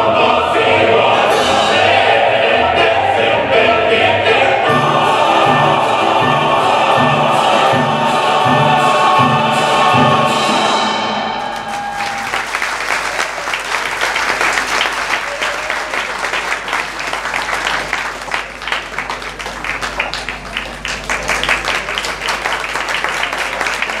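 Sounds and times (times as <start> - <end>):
audience applauding: 11.4 - 24.0.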